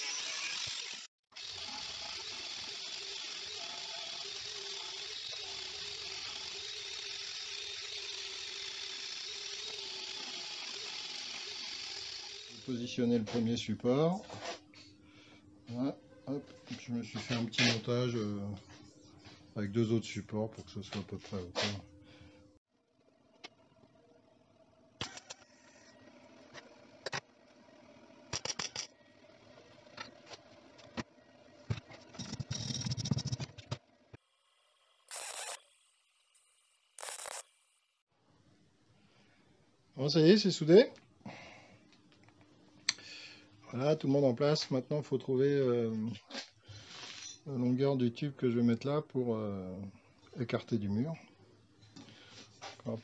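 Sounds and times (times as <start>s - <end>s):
angle grinder grinding steel: 0.0s - 13.7s, 35.0s - 35.7s, 36.3s - 37.6s.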